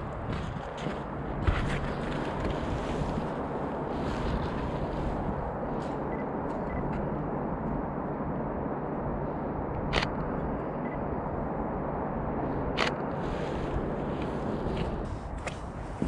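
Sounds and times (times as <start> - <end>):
wind noise on microphone: 0.0 - 16.0.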